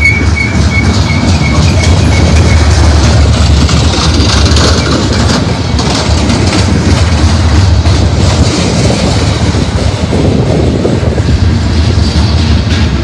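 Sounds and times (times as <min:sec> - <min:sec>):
train wheels rumbling on rail: 0:00.0 - 0:13.0
wheel clicks clattering: 0:00.1 - 0:08.9.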